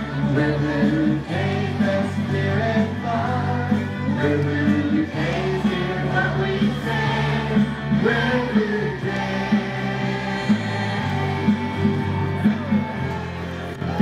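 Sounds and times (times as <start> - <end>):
school band playing: 0.0 - 14.0
voices singing along: 0.0 - 14.0.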